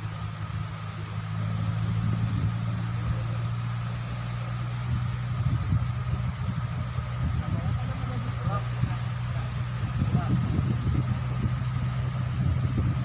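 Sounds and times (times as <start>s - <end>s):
wind buffeting microphone: 4.6s - 13.0s.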